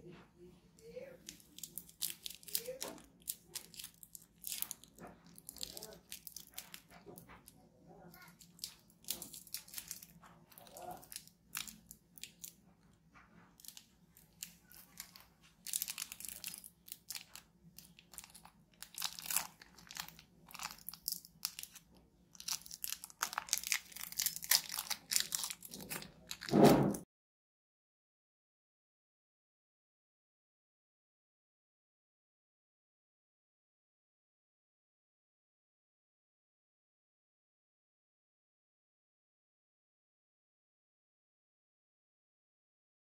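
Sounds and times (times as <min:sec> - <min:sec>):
plastic wrapper crinkling: 0:01.1 - 0:27.0.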